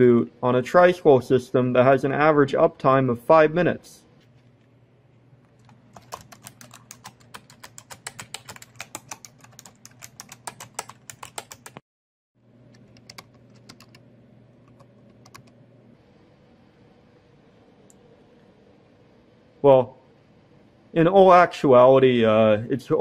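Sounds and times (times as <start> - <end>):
faint steady hum: 0.0 - 11.8, 12.4 - 23.0
typing on computer keyboard: 5.6 - 11.8, 12.7 - 14.0, 14.6 - 15.6.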